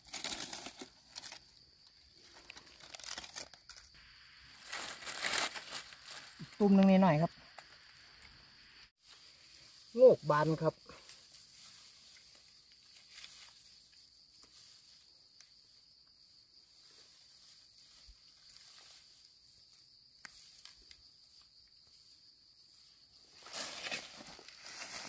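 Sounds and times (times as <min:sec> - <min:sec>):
insects buzzing: 0:00.0 - 0:25.0
footsteps through tall grass: 0:11.0 - 0:15.6, 0:16.6 - 0:20.7, 0:22.7 - 0:25.0.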